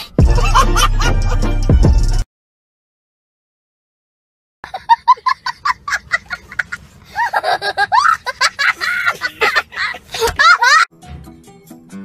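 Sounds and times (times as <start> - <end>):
high-pitched laughter: 4.6 - 10.9.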